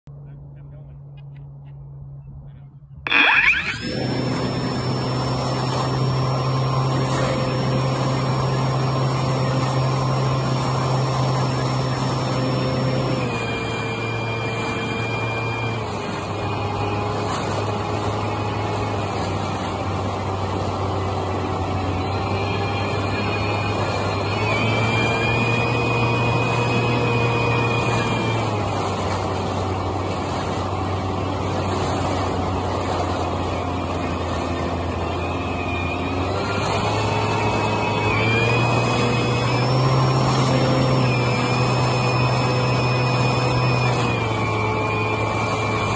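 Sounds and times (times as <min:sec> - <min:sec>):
model airplane motor and propeller: 0:00.1 - 0:45.9.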